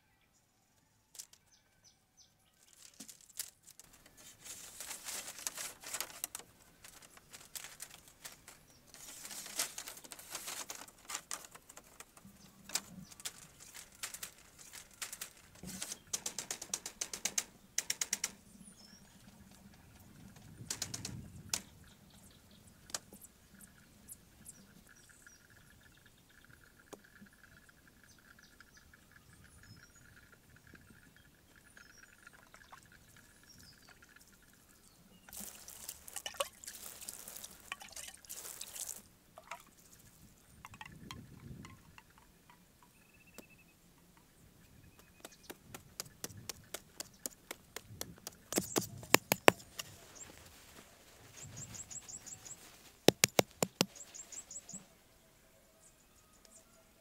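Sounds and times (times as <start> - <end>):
bamboo poles clattering: 2.6 - 18.4, 35.3 - 39.7, 45.2 - 54.4.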